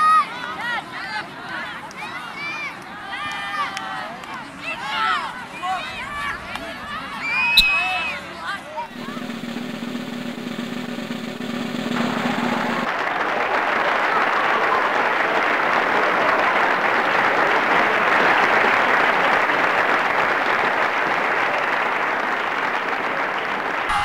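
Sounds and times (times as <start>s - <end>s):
crowd applause: 8.9s - 24.0s.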